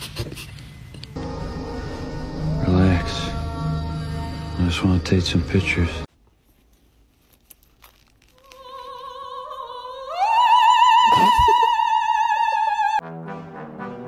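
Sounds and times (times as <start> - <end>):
operatic singing with vibrato: 1.2 - 6.1, 8.4 - 13.0.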